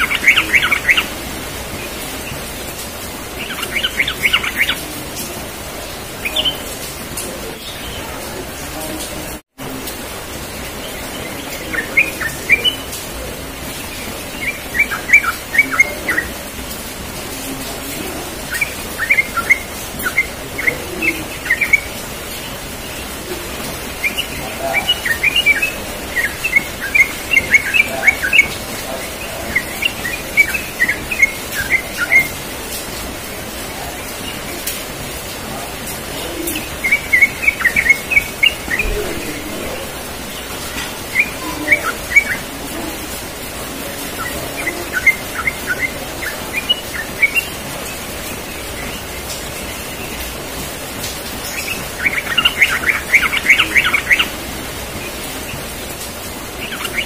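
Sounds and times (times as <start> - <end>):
bird singing bubbling chirps: 0.0 - 2.4, 3.2 - 4.9, 13.8 - 16.4, 18.4 - 23.0, 23.8 - 32.4, 36.1 - 42.8, 43.9 - 50.2, 51.4 - 55.6, 56.5 - 57.0.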